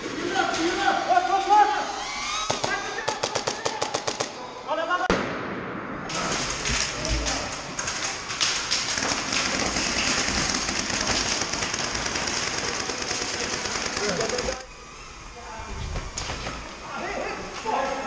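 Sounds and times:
rapid airsoft gunfire: 2.5 - 4.4, 8.6 - 14.7.

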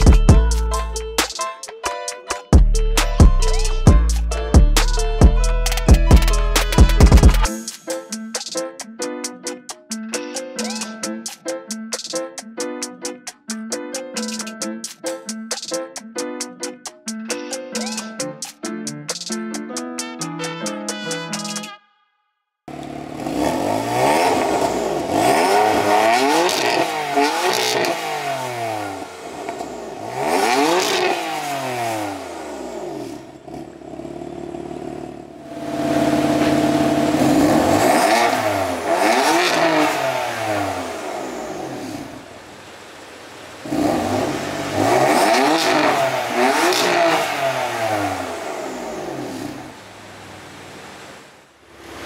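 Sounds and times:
car engine revving: 22.7 - 42.6, 43.5 - 50.8.

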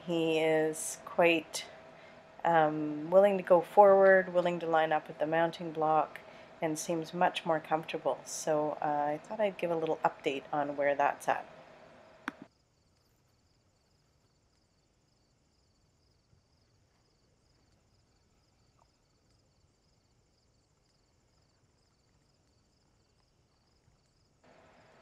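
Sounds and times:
insects chirping: 11.5 - 25.0.

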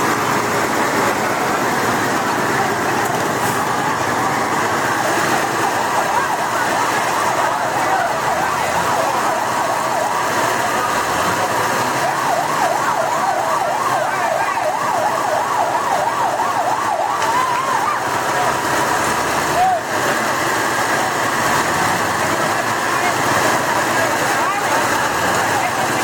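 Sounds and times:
siren yelping: 0.0 - 20.0
noisy background: 0.0 - 26.0.

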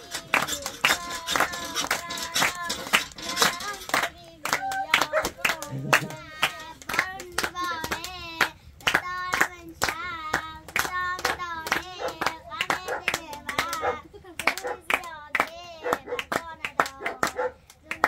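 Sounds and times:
person singing: 0.0 - 6.7
hands clapping in time: 0.0 - 18.0.

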